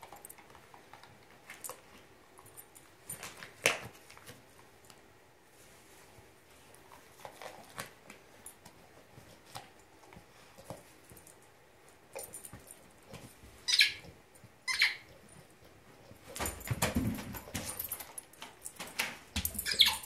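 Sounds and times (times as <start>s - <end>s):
dog crinkling toy wrapping: 6.7s - 9.8s.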